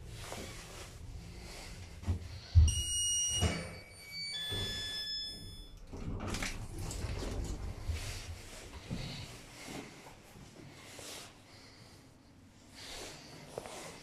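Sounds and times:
lift doors sliding open: 3.3 - 8.7.

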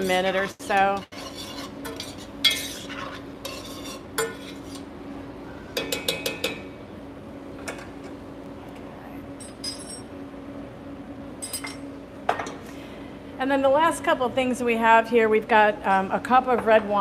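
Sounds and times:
metal spoon stirring in pot: 0.0 - 4.9
steady low hum: 0.0 - 17.0.

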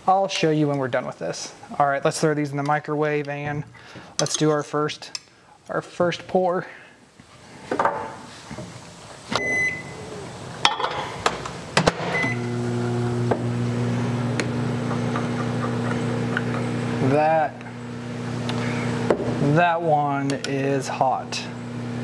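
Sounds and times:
microwave keypad beeps: 9.4 - 10.0, 12.2 - 12.5
microwave humming: 9.4 - 22.0.

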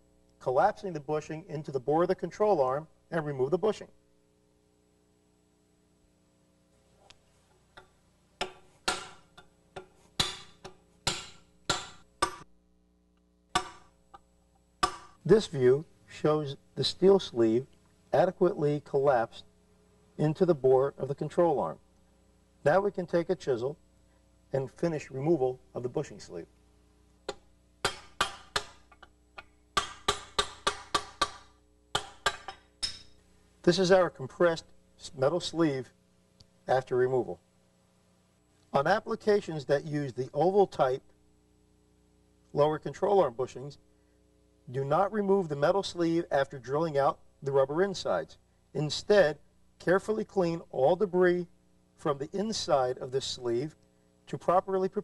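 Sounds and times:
hammer striking chisel on metal: 8.4 - 12.4, 13.5 - 13.9, 14.8 - 15.2, 27.3 - 29.1, 29.8 - 33.2
hammer striking steel drift: 8.4 - 12.4.

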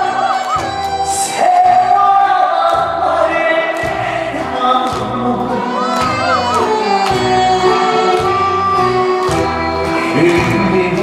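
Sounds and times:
amplified backing track: 0.0 - 11.0
man singing into microphone: 1.1 - 7.0, 10.0 - 11.0.

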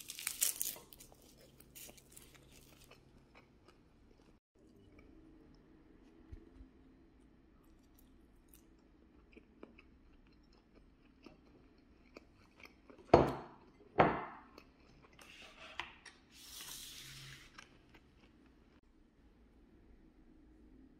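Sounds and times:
person chewing fried chicken: 0.0 - 5.1, 7.6 - 13.9.

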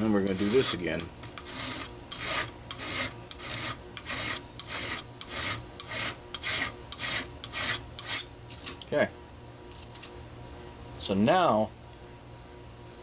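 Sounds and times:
file rasping on chainsaw chain: 0.2 - 8.3.

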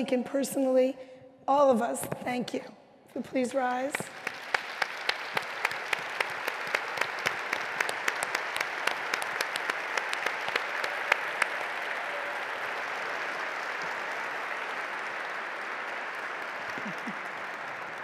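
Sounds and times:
audience applauding: 3.9 - 18.0
close hand claps: 3.9 - 18.0.

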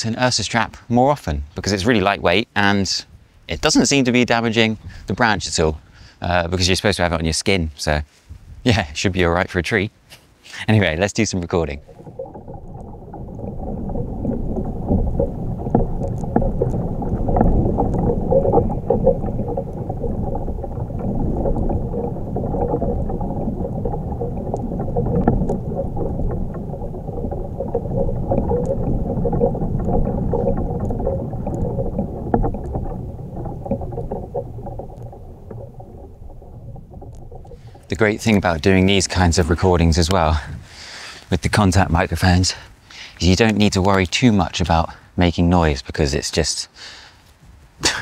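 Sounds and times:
tree branch creaking in wind: 11.6 - 39.6.

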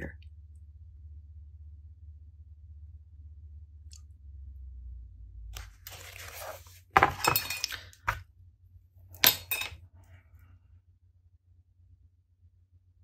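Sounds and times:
paint jar and lid clinking: 5.9 - 8.2, 9.2 - 9.8.

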